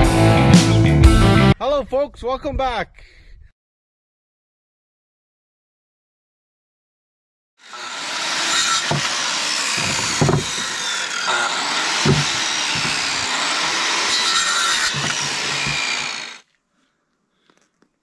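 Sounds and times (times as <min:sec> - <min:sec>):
circular saw cutting bone: 0:07.6 - 0:16.4
knocks: 0:08.8 - 0:09.1, 0:09.8 - 0:10.7, 0:12.0 - 0:13.0.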